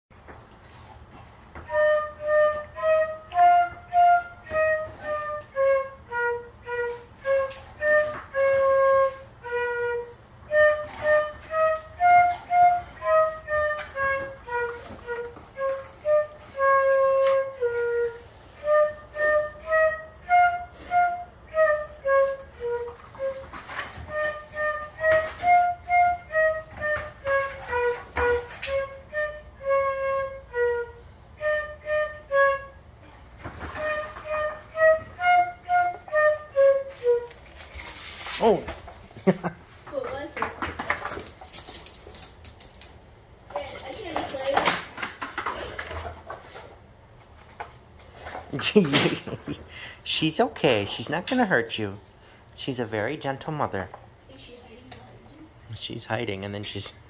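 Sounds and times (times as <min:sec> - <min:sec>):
flute melody: 0:01.5 - 0:38.8.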